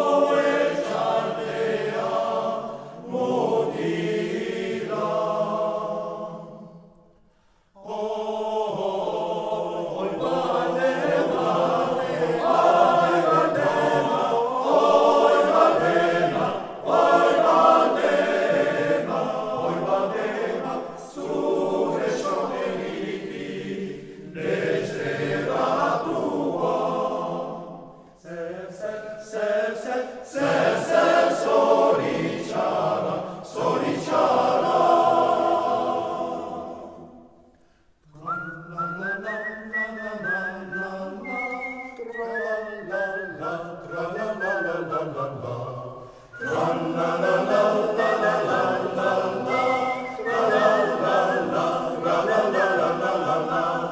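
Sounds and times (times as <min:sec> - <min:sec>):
male choir singing: 0:00.0 - 0:06.9, 0:07.8 - 0:37.4, 0:38.1 - 0:53.9
singers breathing: 0:07.2 - 0:07.8, 0:37.4 - 0:38.0, 0:46.0 - 0:46.4.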